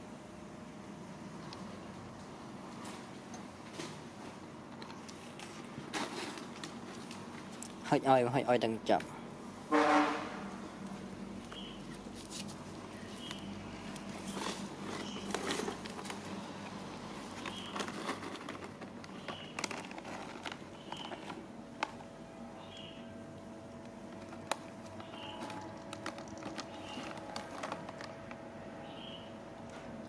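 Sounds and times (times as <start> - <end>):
plastic packet crinkling: 17.3 - 22.0, 24.1 - 28.4.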